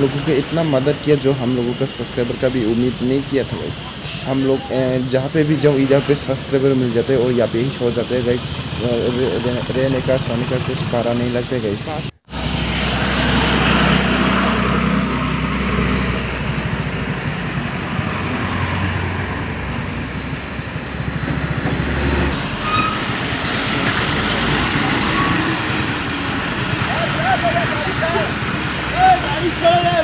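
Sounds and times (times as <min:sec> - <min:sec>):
surrounding traffic noise: 0:00.0 - 0:30.0
low engine drone: 0:05.8 - 0:18.6.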